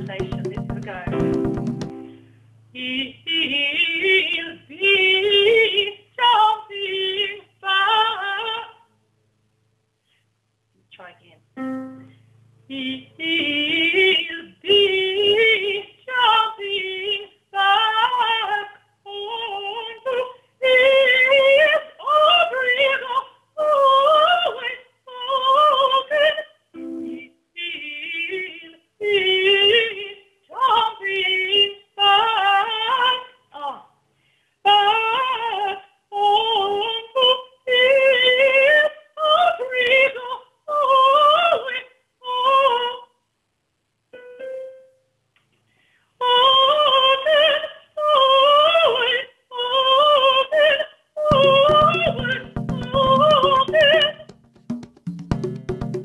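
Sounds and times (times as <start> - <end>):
woman singing unaccompanied: 0.0 - 1.3, 2.7 - 8.9, 12.7 - 33.9, 34.7 - 43.2, 46.2 - 54.4
singer breathing: 2.0 - 2.6, 34.1 - 34.6, 45.6 - 46.2.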